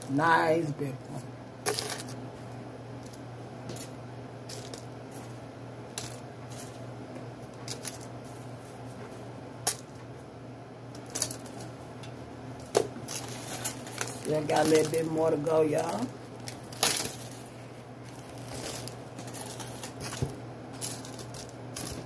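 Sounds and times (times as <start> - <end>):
steady low hum: 0.0 - 22.0
small pieces clicking on foil: 13.1 - 15.2, 15.9 - 17.4, 18.5 - 22.0.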